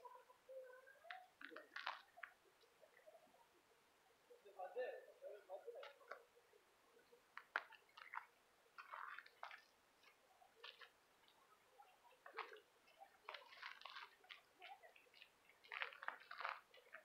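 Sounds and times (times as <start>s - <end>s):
faint crackles and rustles: 0.0s - 17.0s.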